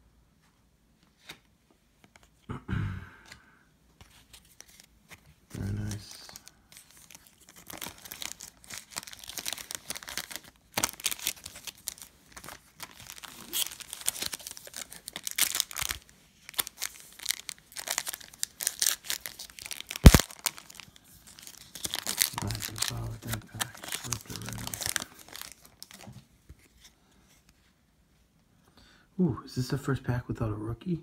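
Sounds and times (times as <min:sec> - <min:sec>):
foil wrappers crinkling and tearing: 0:05.6 - 0:26.1.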